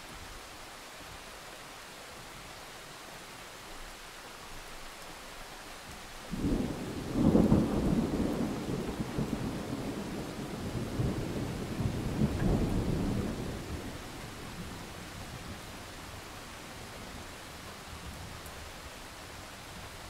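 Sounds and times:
steady rain: 0:00.0 - 0:20.0
thunder rolling: 0:06.4 - 0:14.0.

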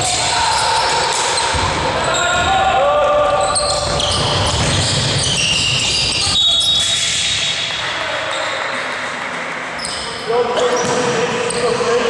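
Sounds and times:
sneakers squeaking on gym floor: 0:00.5 - 0:02.5, 0:03.4 - 0:08.7, 0:09.8 - 0:12.0.

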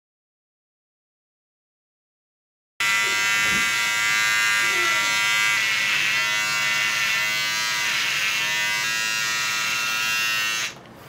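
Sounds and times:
small electric motor buzzing: 0:02.8 - 0:10.8.

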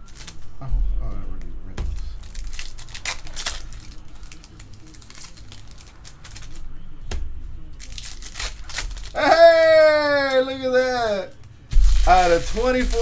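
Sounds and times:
foil wrapper crinkling and tearing: 0:00.0 - 0:00.4, 0:02.2 - 0:06.7, 0:07.8 - 0:10.5, 0:11.7 - 0:13.0
cards shuffled: 0:01.9 - 0:06.7.

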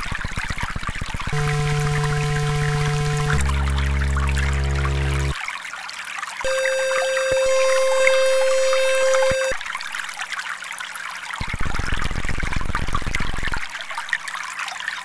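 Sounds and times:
trickling water: 0:00.0 - 0:15.0
pulsing electronic buzz: 0:01.3 - 0:05.4, 0:06.5 - 0:09.6
steady electronic tone: 0:01.3 - 0:05.4, 0:06.5 - 0:09.6.

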